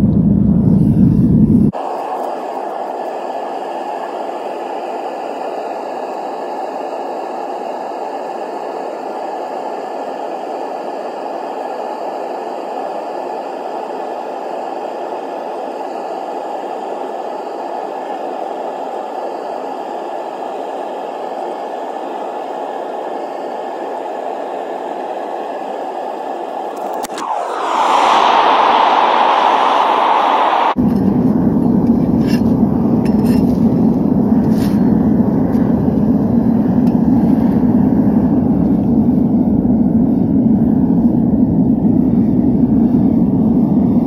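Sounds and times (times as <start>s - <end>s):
propane burner rushing: 26.7s - 39.1s.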